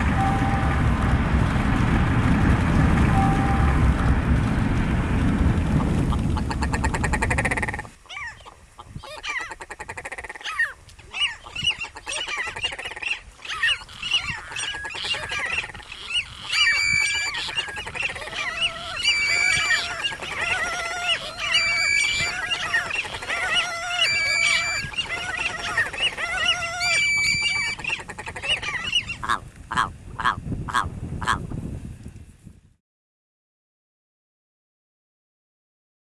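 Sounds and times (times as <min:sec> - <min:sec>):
steady low rumble: 0:00.0 - 0:08.0, 0:14.0 - 0:32.8
birds alarm calls: 0:06.4 - 0:31.4
honk-like bird calls: 0:09.0 - 0:31.4
held bird whistles: 0:12.6 - 0:29.3.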